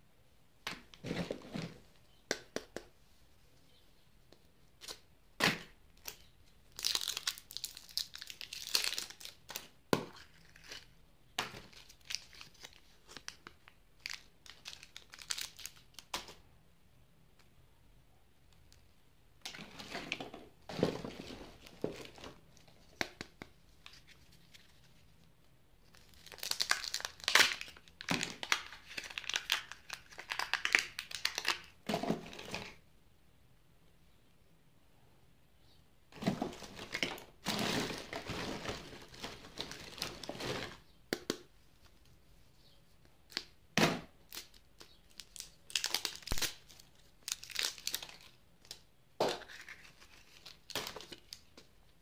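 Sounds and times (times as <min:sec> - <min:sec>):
crinkling plastic wrappers: 0:06.0 - 0:16.4, 0:25.8 - 0:31.8, 0:36.2 - 0:40.8, 0:44.3 - 0:48.8.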